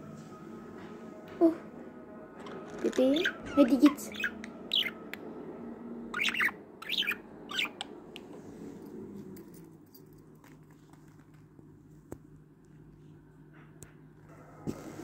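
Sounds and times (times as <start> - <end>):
faint low hum: 0.0 - 15.0
budgerigar chirping: 3.2 - 5.0, 6.1 - 7.8.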